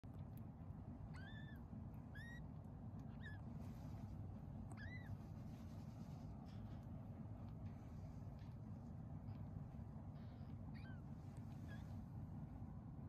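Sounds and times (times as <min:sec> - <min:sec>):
steady low rumble: 0:00.0 - 0:13.0
kittens mewing: 0:04.7 - 0:05.2, 0:10.3 - 0:11.8.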